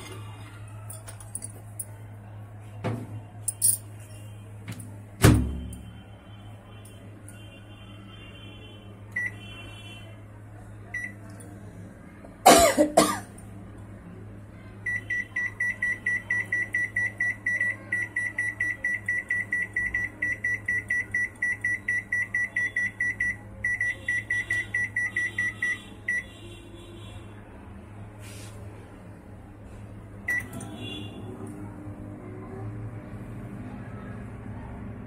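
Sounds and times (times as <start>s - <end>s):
microwave keypad beeping: 9.2s - 9.4s, 10.9s - 11.2s, 14.8s - 26.3s, 30.3s - 31.0s.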